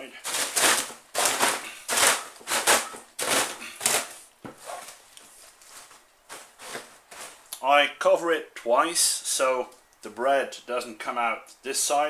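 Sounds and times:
dry bread crunching in cloth: 0.1 - 7.6.

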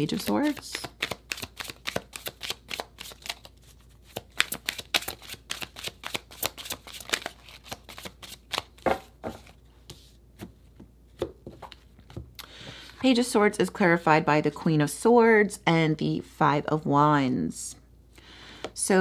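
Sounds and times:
cards being shuffled: 0.0 - 12.2.

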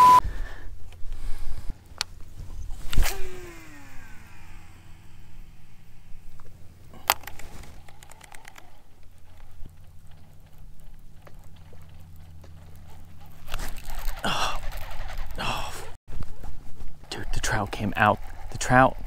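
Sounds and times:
steady low hum: 0.0 - 19.0
fishing reel spool whirring: 2.4 - 15.6
small reel clicks: 2.8 - 15.4.

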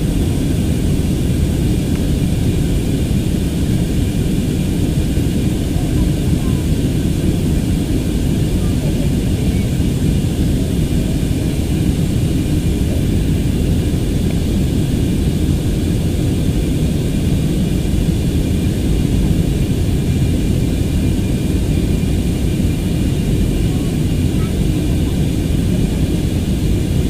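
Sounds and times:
airliner cabin drone: 0.0 - 27.0.

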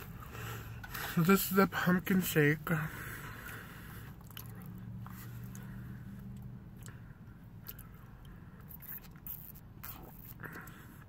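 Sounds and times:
low steady hum: 0.0 - 11.0
wet mouth sounds and lip smacks: 3.4 - 7.0, 7.6 - 11.0.

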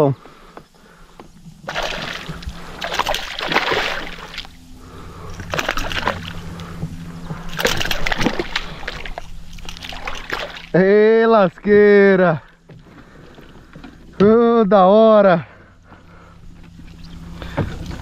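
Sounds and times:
fish splashing in water: 1.6 - 10.8.

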